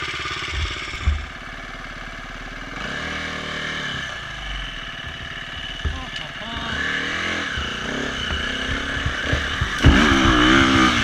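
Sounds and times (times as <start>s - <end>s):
dirt bike engine running: 0.0s - 11.0s
loud thump: 0.5s - 1.8s, 4.4s - 11.0s.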